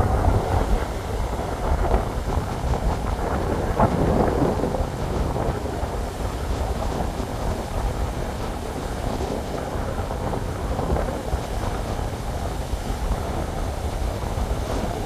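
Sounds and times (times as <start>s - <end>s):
surf breaking on beach: 0.0s - 15.0s
wind buffeting microphone: 0.0s - 15.0s.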